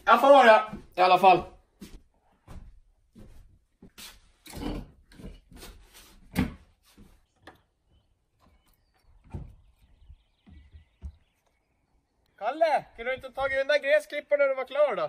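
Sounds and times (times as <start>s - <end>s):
footsteps: 0.0s - 4.4s, 5.2s - 7.3s
doors knocking open and closed: 8.4s - 11.4s.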